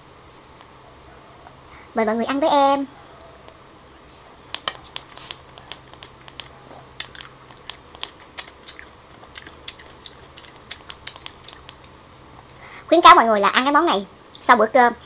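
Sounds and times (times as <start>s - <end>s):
close chewing crunches: 4.8s - 12.6s.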